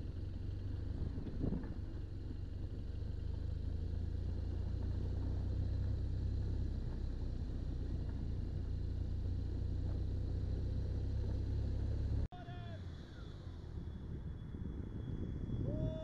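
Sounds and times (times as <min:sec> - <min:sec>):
motorcycle engine rumble: 0:00.0 - 0:16.0.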